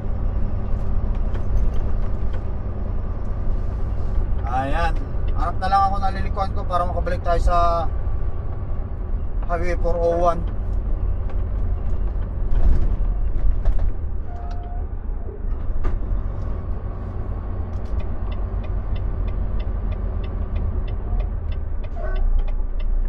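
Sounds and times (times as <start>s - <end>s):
truck engine and road rumble: 0.0s - 23.0s
turn signal clicking: 17.7s - 23.0s.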